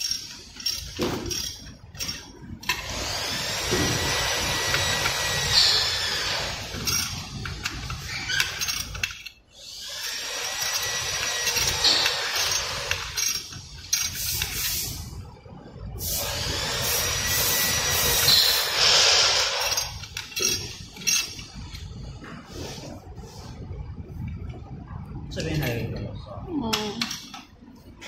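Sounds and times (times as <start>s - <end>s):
ratchet wrench clicking: 4.5s - 14.8s.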